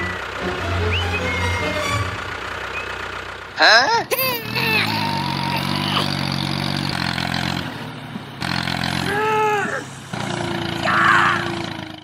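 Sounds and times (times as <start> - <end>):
rising and falling call: 0.0 - 3.1
tractor engine running: 0.0 - 12.0.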